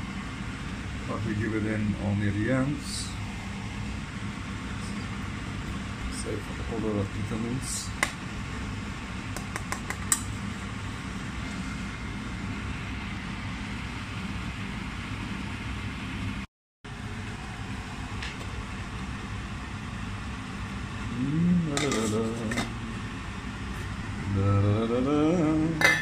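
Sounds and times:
steady background hum: 0.0s - 26.0s
metal spoon clinking on pot: 25.8s - 26.0s.

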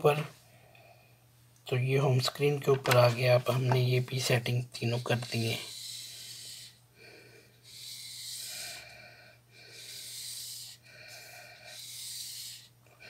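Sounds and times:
low electrical hum: 0.0s - 13.0s
person breathing softly: 5.6s - 13.0s.

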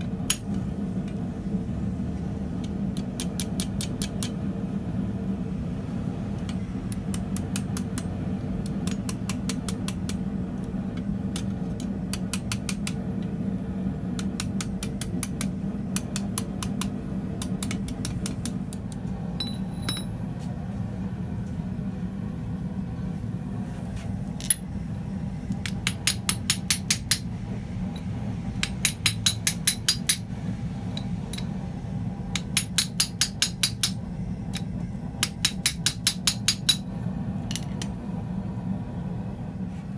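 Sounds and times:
steady low hum: 0.0s - 39.9s
hammer striking steel on anvil: 19.4s - 20.2s, 25.6s - 27.3s, 28.0s - 30.3s, 32.3s - 36.9s.

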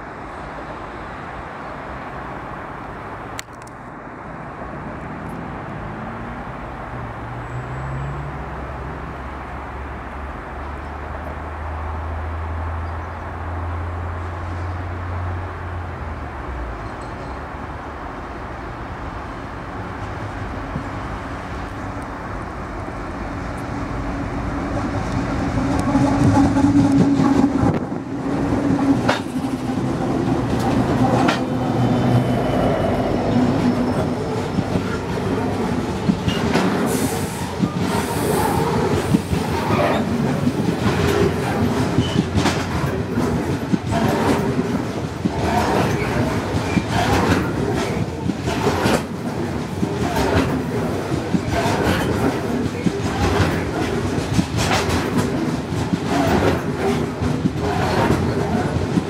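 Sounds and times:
diesel locomotive engines droning: 0.0s - 59.0s
train wheels clickety-clack: 24.6s - 32.2s, 33.2s - 59.0s.

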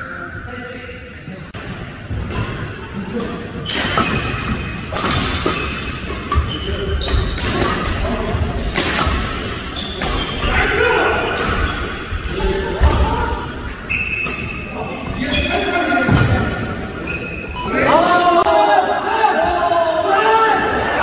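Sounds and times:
racket hitting shuttlecock: 3.2s - 8.0s, 8.6s - 10.4s.

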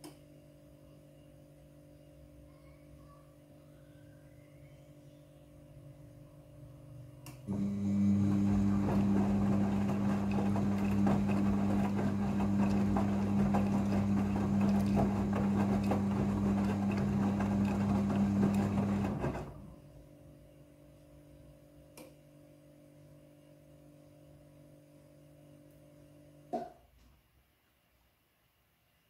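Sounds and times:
washing machine motor humming: 7.4s - 20.1s
laundry and water sloshing in drum: 8.5s - 19.6s.

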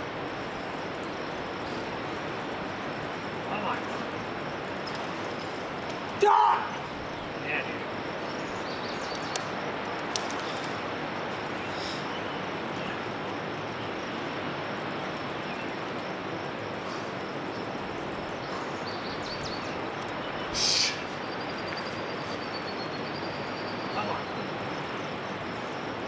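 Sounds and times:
steady outdoor background hiss: 0.0s - 26.0s
short sharp hissing burst: 20.5s - 21.1s.

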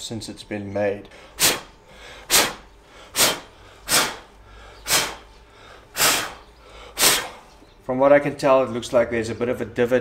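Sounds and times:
sharp puffs of breath: 1.1s - 7.6s.

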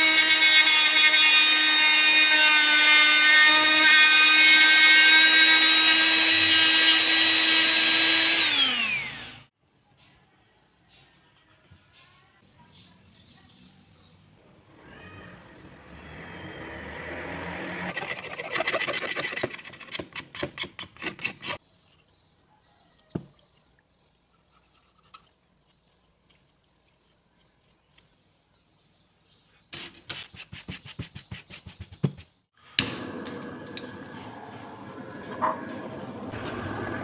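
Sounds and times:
gas torch hissing: 32.6s - 37.0s.

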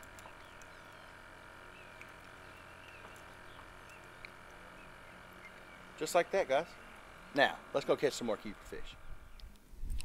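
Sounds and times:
low steady hum: 0.0s - 10.0s
bird chirps: 0.1s - 7.3s.

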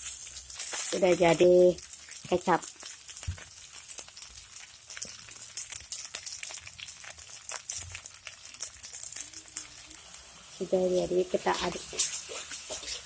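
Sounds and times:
rice sizzling in a wok: 0.0s - 13.0s
metal spatula scraping wok: 11.3s - 13.0s.

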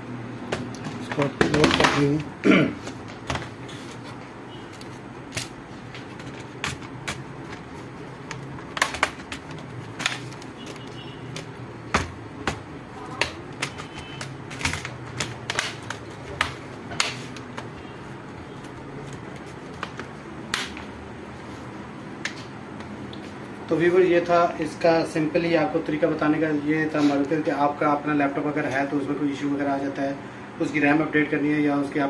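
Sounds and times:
plastic laptop case clicking: 4.7s - 17.8s, 18.5s - 20.9s.

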